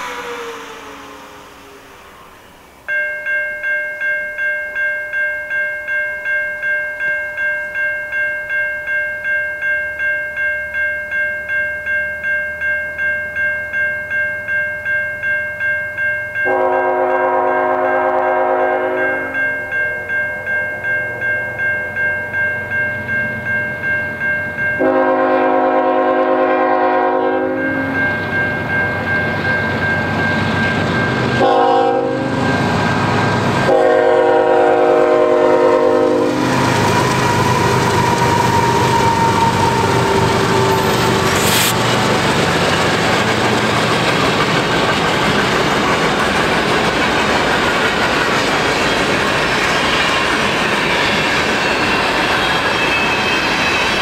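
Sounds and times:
approaching train rumble: 0.0 - 3.0, 16.5 - 54.0
level crossing bell ringing: 2.8 - 32.6
locomotive air horn blasts: 16.5 - 19.4, 24.8 - 28.0, 31.4 - 32.6, 33.6 - 37.0, 38.3 - 41.8.

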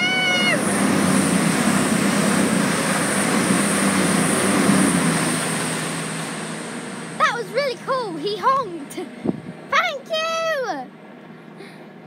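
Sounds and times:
train wheels on rails: 0.0 - 9.7
train diesel engines: 0.0 - 12.0.

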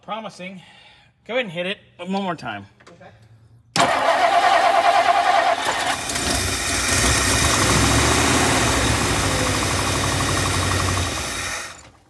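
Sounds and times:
car engine firing unevenly: 3.8 - 12.0
starter motor cranking: 3.8 - 12.0.

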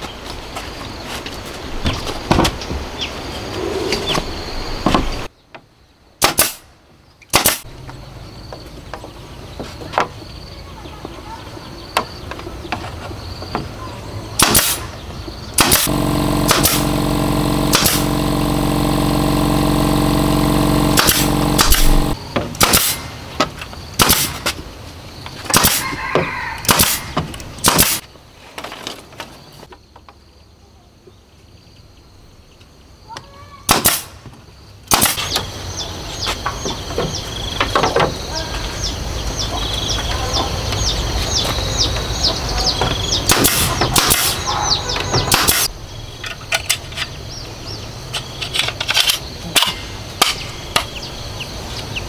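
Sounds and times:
pneumatic nailer shots: 6.2 - 6.7, 7.3 - 7.7, 14.4 - 15.0, 15.6 - 23.4, 24.0 - 24.6, 25.5 - 25.9, 26.6 - 28.1, 33.7 - 34.3, 34.9 - 35.4, 43.2 - 45.7
steady motor hum: 15.6 - 22.2.

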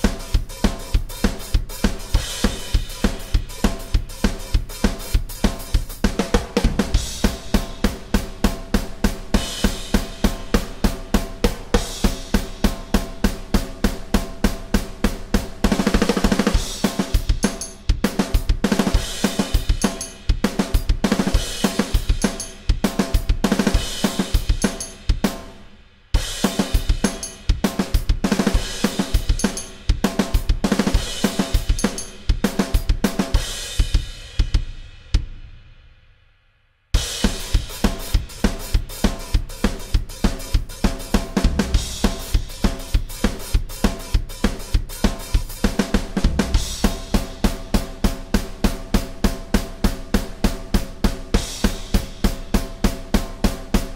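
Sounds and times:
electronic drum kit rock beat: 0.0 - 35.6, 37.0 - 53.9
cymbal ringing: 19.6 - 20.3, 21.8 - 22.7, 24.4 - 25.0, 26.8 - 27.5, 31.4 - 32.2.

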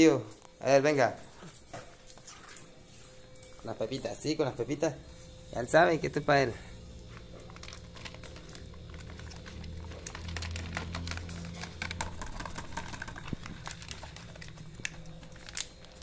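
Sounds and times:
dog crunching dry kibble: 7.0 - 16.0.

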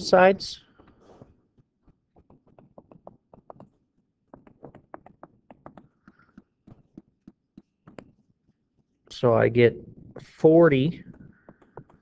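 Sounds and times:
stylus tapping on tablet screen: 1.6 - 9.0, 11.1 - 12.0.

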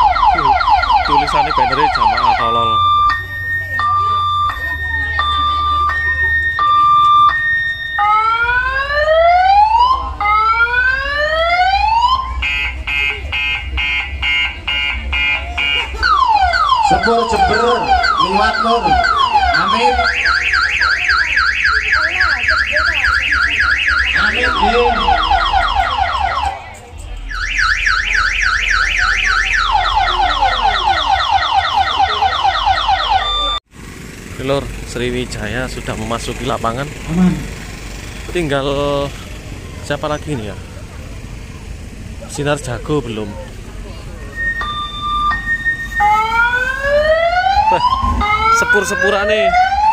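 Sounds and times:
steady bass hum: 0.0 - 21.1, 22.9 - 31.6, 34.3 - 49.9
electronic siren: 0.0 - 33.7, 44.1 - 49.9.

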